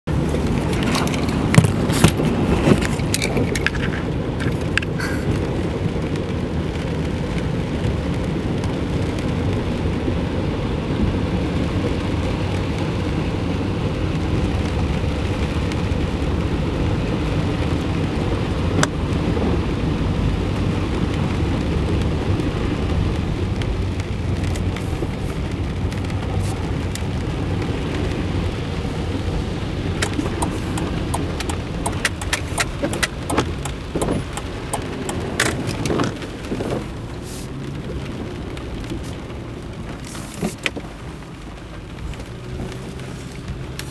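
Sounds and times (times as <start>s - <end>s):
water churning under a car: 0.1s - 43.9s
sharp taps: 30.0s - 35.6s.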